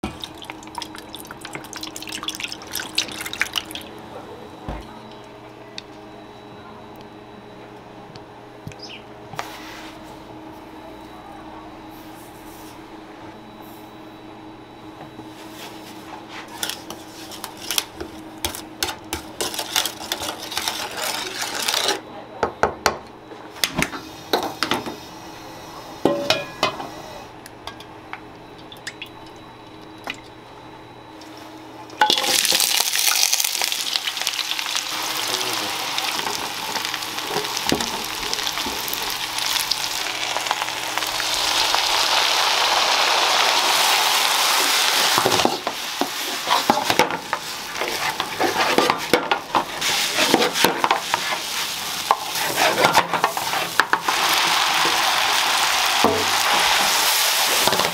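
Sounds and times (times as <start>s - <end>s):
wooden spoon scraping a pan: 19.4s - 22.0s, 45.3s - 54.3s
food sizzling in hot oil: 32.0s - 57.9s.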